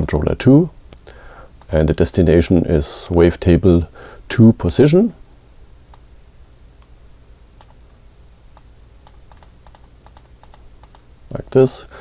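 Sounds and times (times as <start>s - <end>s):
low room hum: 0.0s - 12.0s
computer mouse clicking: 1.6s - 1.8s, 7.6s - 7.8s, 8.5s - 11.1s.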